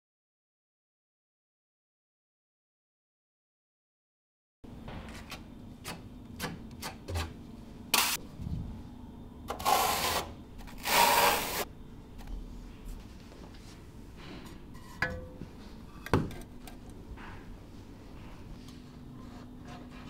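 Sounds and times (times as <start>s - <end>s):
faint steady hum: 4.7s - 20.0s.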